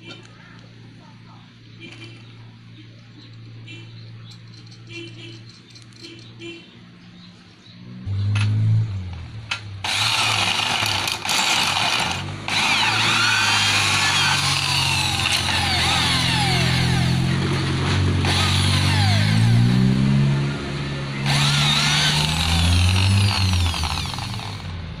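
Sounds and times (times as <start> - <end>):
drill bit scraping rubber: 9.8 - 17.3, 18.2 - 19.5, 21.2 - 24.7
electric drill motor hum: 9.8 - 17.3, 18.2 - 19.6, 21.2 - 24.8.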